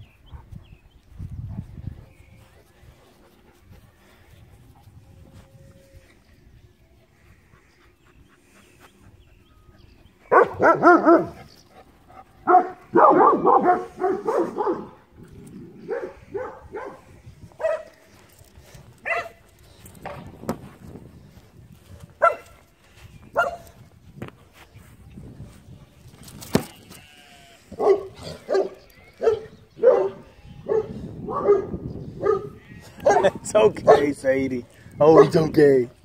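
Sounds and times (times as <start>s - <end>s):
dog barking: 10.3s - 11.4s, 12.4s - 15.0s, 15.9s - 17.0s, 17.6s - 17.9s, 19.0s - 19.4s, 22.2s - 22.5s, 23.4s - 23.6s, 27.8s - 34.1s.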